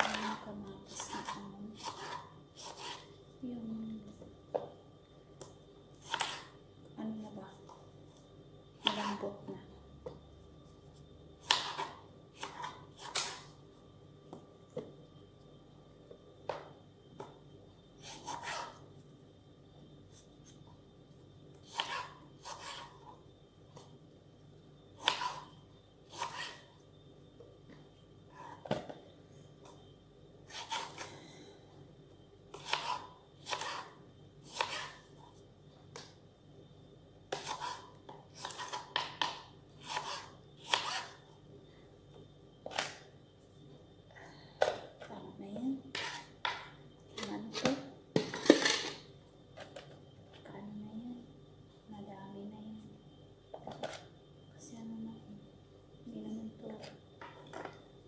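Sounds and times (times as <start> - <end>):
knife chopping on cutting board: 0.0 - 3.0, 11.4 - 13.4, 25.0 - 25.4, 32.5 - 33.9, 34.5 - 34.9, 37.3 - 37.8, 38.4 - 41.1.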